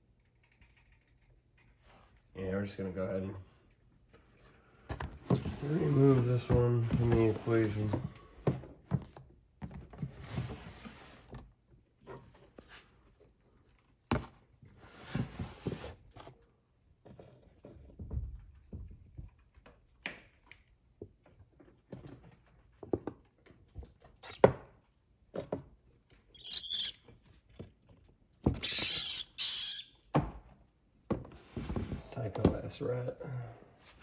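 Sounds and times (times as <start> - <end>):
scraping rustles: 5.2 - 8.1.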